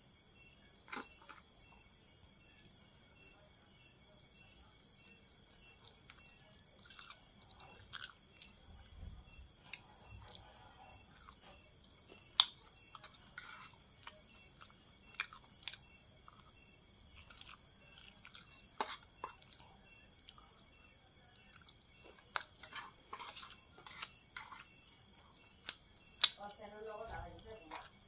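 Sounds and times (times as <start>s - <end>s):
wet chewing: 5.8s - 8.6s, 9.6s - 20.7s, 21.4s - 26.4s.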